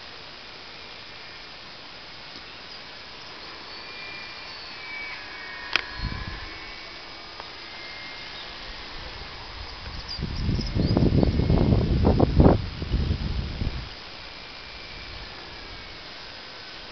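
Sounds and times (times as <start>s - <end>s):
model plane motor whining: 0.0s - 16.9s.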